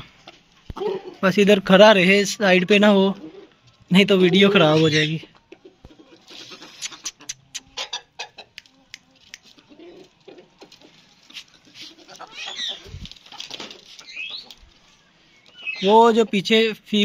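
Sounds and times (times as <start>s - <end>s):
gliding chicken calls: 4.3s - 16.4s.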